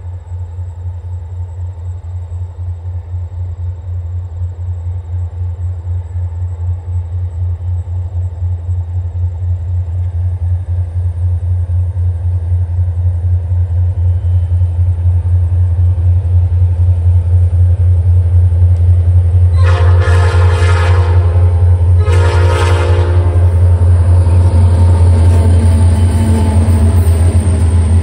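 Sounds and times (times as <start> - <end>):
diesel locomotive rumble: 0.0 - 28.0
train air horn blast: 19.5 - 25.0.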